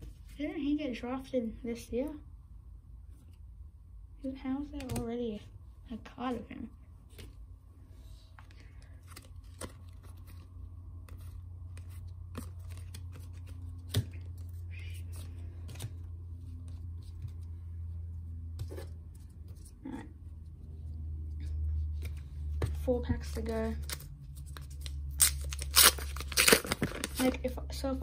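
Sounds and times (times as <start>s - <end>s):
steady low hum: 0.0s - 28.0s
cards handled on wooden table: 8.4s - 17.6s, 21.8s - 24.8s.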